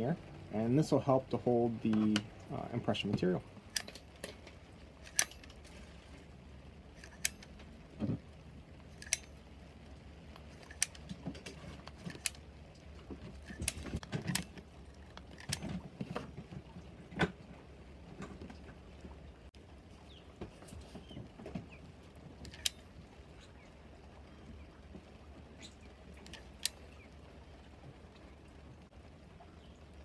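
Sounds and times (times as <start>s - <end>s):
low steady hum: 0.0s - 30.0s
dispenser clicking: 5.0s - 5.7s, 7.0s - 7.6s, 8.9s - 9.4s, 10.4s - 12.4s, 13.4s - 15.8s
handling knocks and rustling: 10.4s - 19.3s, 20.3s - 23.0s.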